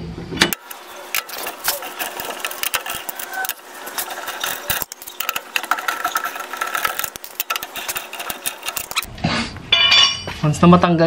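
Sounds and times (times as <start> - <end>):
lug wrench clicking and rattling: 0.4 - 9.1.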